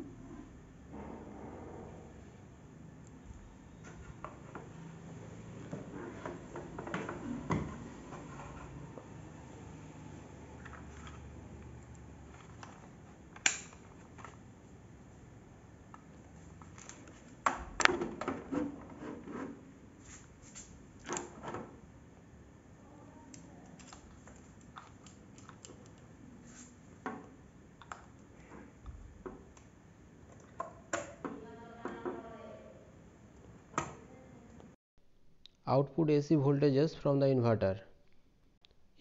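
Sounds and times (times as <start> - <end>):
multimeter probes clicking and knocking: 23.3 - 26.1.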